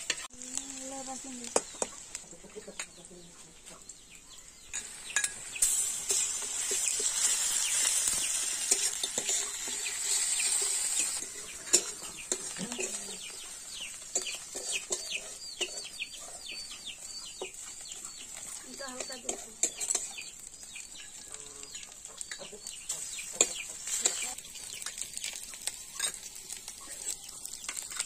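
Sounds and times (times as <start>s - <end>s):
fish sizzling in hot oil: 0.0s - 3.2s, 4.5s - 28.0s
chickens peeping: 1.0s - 27.9s
spatula scraping metal pan: 4.8s - 16.5s, 17.5s - 20.4s.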